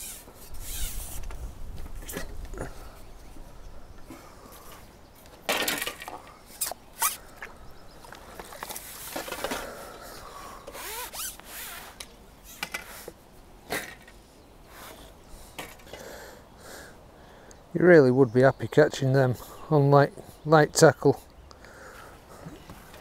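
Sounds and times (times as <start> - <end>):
rasping sliding sounds: 0.0 - 1.4.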